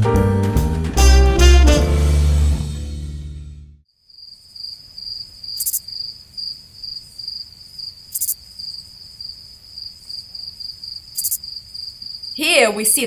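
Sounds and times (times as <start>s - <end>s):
crickets chirping: 3.9s - 13.0s.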